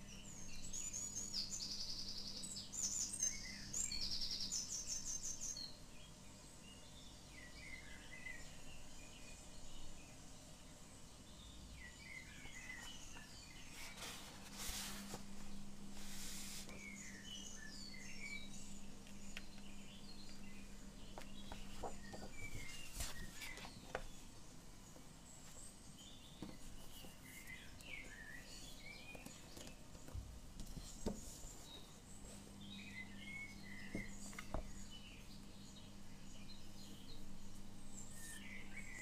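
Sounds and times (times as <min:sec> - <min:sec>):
faint low hum: 0:00.0 - 0:39.0
small birds chirping: 0:00.0 - 0:39.0
sketchbook taps and paper rustles: 0:21.1 - 0:24.2.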